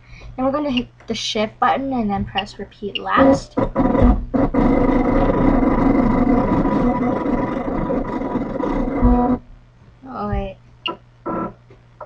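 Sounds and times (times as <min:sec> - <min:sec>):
cutting machine motors whirring: 0:02.9 - 0:09.4.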